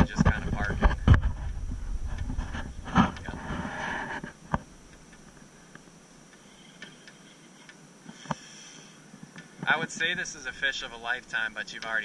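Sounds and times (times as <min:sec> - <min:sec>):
wind buffeting microphone: 0:00.0 - 0:04.2
faint ticks: 0:04.3 - 0:10.5, 0:11.5 - 0:12.0.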